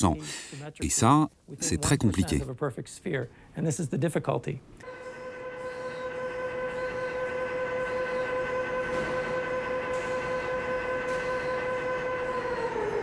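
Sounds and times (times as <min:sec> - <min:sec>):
steady drone with hiss: 0:04.8 - 0:13.0.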